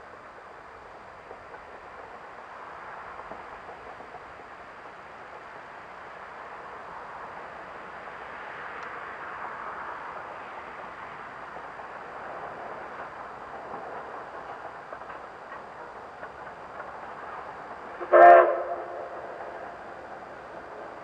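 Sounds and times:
distant steam locomotive running: 0.0 - 21.0
steam whistle blast: 18.0 - 19.1.

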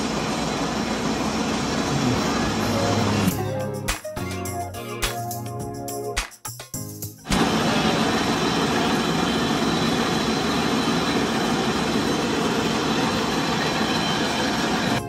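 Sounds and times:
mill machinery din: 0.0 - 3.3, 7.3 - 15.0.

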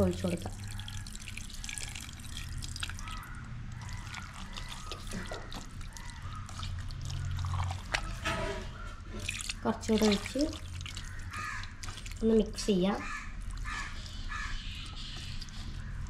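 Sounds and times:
water pouring into a pot: 0.0 - 8.4, 9.2 - 12.3
hand squelching wet meat: 0.0 - 16.0.

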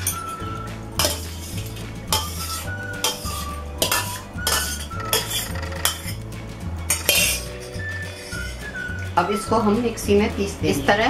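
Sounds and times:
spoon scraping steel bowl: 0.0 - 6.3, 6.9 - 8.9.

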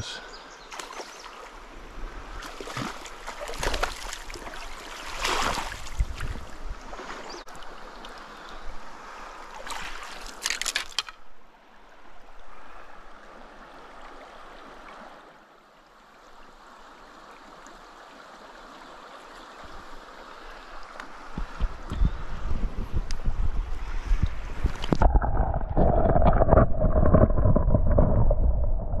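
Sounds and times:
water splashing: 2.2 - 8.2
stream running over gravel: 2.3 - 8.5, 9.4 - 11.2
low rumbling bumps: 24.6 - 29.0.

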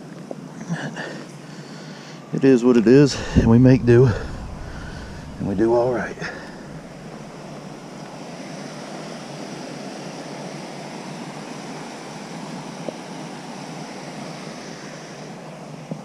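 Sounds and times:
light rain: 3.1 - 8.8.

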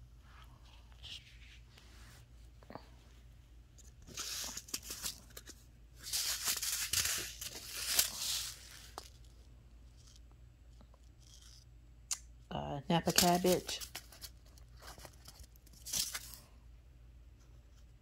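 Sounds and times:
paper envelopes rustling: 3.8 - 9.4, 13.0 - 16.4.

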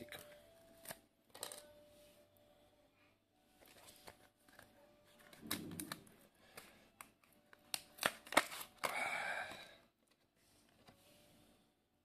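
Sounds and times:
plastic packaging clicks and crackles: 3.6 - 10.3.

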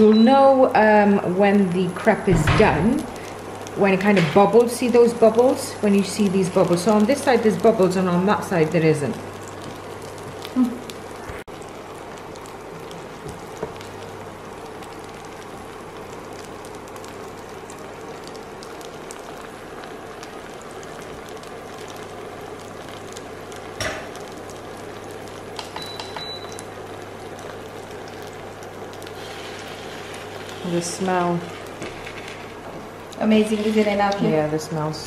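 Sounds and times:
batter sizzling in a pan: 0.5 - 35.0.

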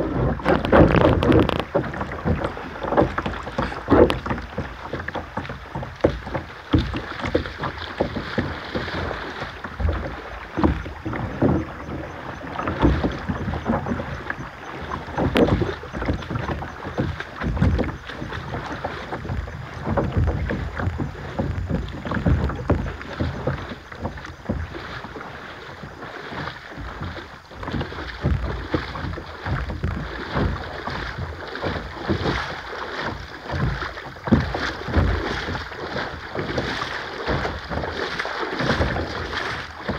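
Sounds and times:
wind buffeting microphone: 0.0 - 25.2
paddle splashing in water: 0.0 - 39.9
running water: 0.0 - 39.9.

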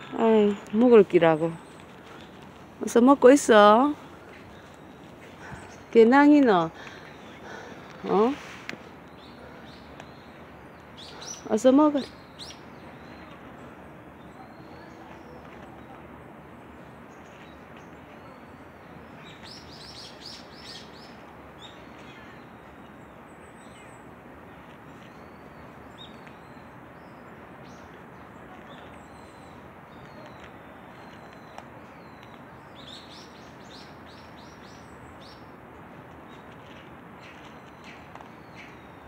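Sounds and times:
small birds chirping: 0.0 - 39.0
steady background hiss: 0.0 - 39.0.

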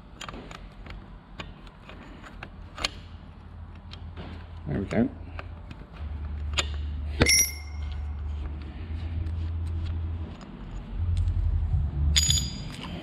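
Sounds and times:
metal punch clinking on concrete: 6.6 - 7.9, 12.1 - 13.0
steady low rumble: 7.8 - 13.0.

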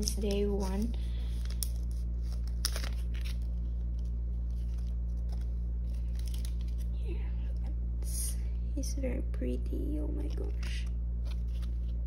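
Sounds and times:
plastic card sleeves rustling: 0.0 - 7.0, 10.2 - 12.0
steady low hum: 0.0 - 12.0.

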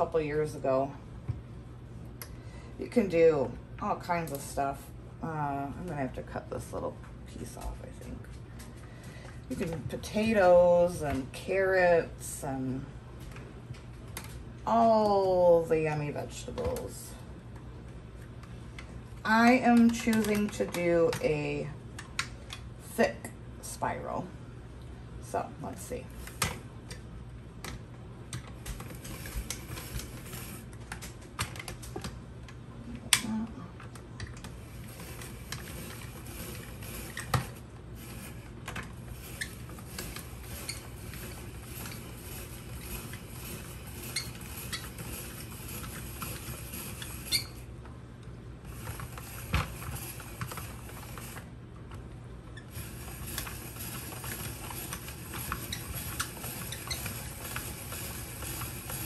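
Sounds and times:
spiralizer clicking and rattling: 19.3 - 21.3, 27.6 - 32.1, 34.2 - 47.6, 48.7 - 51.5, 52.6 - 59.0.

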